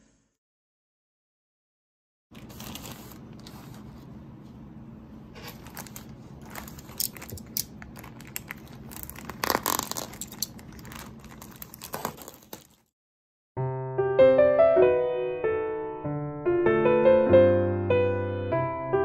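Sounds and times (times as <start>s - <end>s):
plastic bag crinkling: 2.3s - 3.9s, 5.3s - 12.9s.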